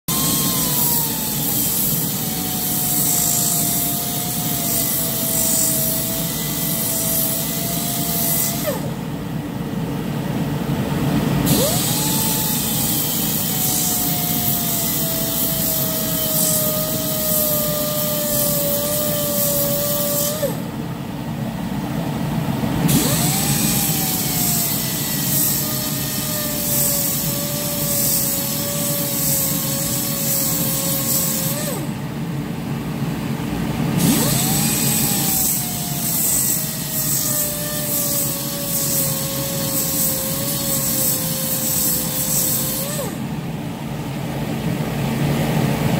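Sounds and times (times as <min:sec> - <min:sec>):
belt sander grinding metal: 0:00.1 - 0:08.9, 0:11.5 - 0:20.6, 0:22.9 - 0:31.9, 0:34.0 - 0:43.2.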